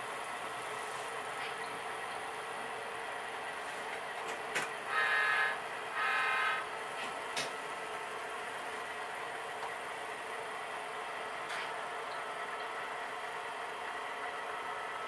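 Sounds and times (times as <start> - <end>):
model train hum: 0.0 - 15.0
model train horn blasts: 4.9 - 6.7.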